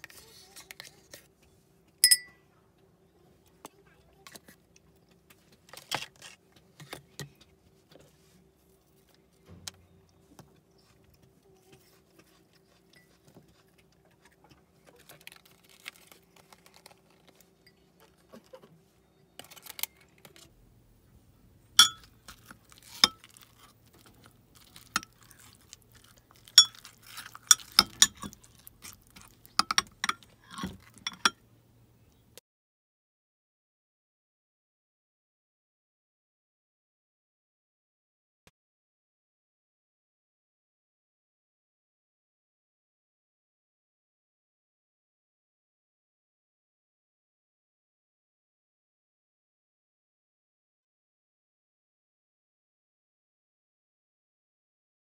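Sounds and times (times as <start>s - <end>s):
spoon clinking against glass mug: 2.0s - 2.3s, 21.8s - 22.1s, 23.0s - 23.2s, 26.5s - 26.9s, 27.5s - 28.4s, 29.6s - 31.4s
kitchenware tapping on stone counter: 21.8s - 22.1s, 29.6s - 31.4s.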